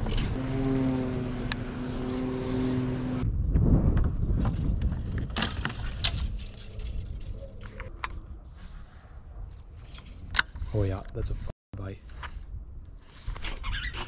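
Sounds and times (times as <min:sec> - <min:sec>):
boat motor humming: 0:00.0 - 0:03.2
wind on microphone: 0:02.4 - 0:11.5.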